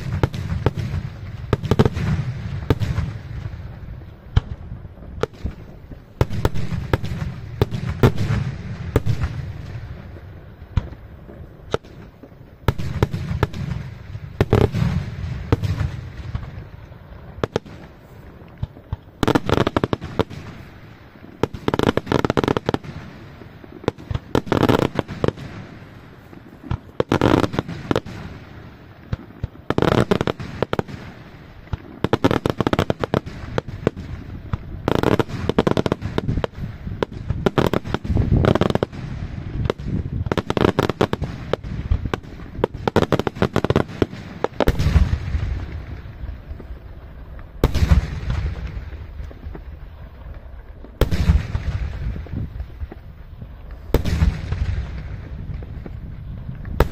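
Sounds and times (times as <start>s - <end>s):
fireworks bangs and crackles: 0.0s - 56.9s
heavy firework boom: 53.9s - 56.9s.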